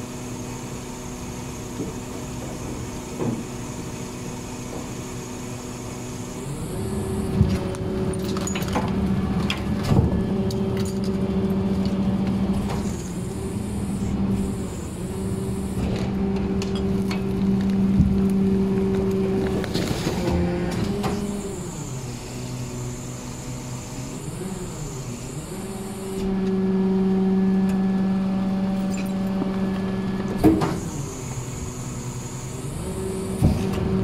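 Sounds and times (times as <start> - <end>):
garbage truck compactor hydraulic drone: 0.0 - 34.0
cracks and crunches of load: 7.0 - 13.2, 15.3 - 21.6.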